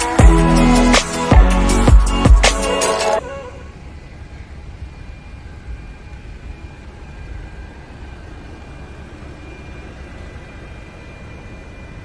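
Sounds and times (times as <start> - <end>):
faint high whine: 0.0 - 12.0.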